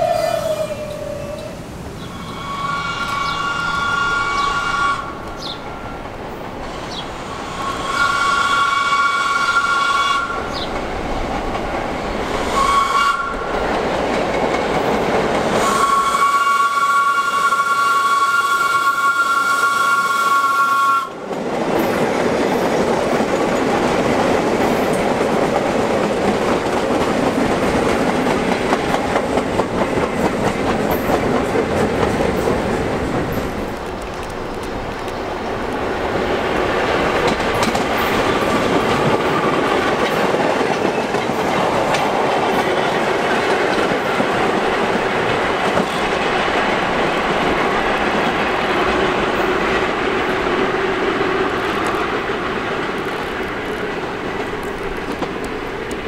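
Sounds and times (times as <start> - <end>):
subway train two-tone horn: 0.0 - 6.0, 7.2 - 10.7, 12.3 - 13.6, 15.5 - 21.2
train rumbling past: 0.0 - 56.0.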